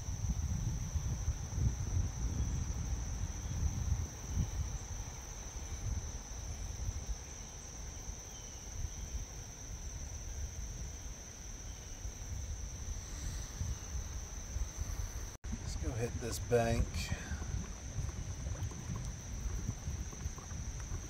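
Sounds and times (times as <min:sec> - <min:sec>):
insects droning: 0:00.0 - 0:21.0
low rumble: 0:15.5 - 0:21.0.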